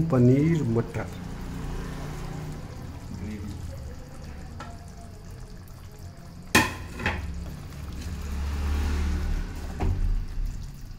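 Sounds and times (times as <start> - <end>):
spoon knocking metal pan: 6.5 - 7.4.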